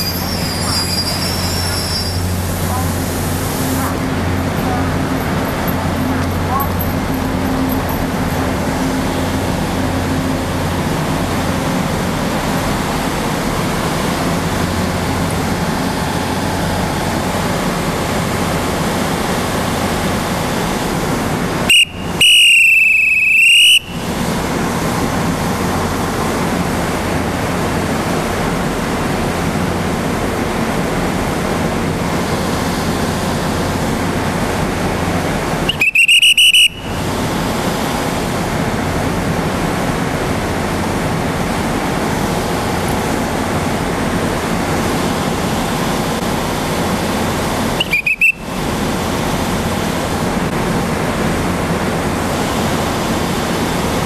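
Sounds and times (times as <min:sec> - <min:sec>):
loud high-pitched whistle blasts: 0:00.0 - 0:02.4, 0:21.7 - 0:24.1, 0:35.7 - 0:37.0, 0:47.8 - 0:48.6
steady rushing noise: 0:01.4 - 0:22.2.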